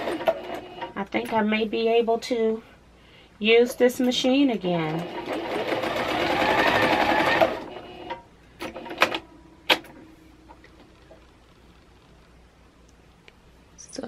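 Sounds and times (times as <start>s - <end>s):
sewing machine stitching: 4.8s - 9.2s.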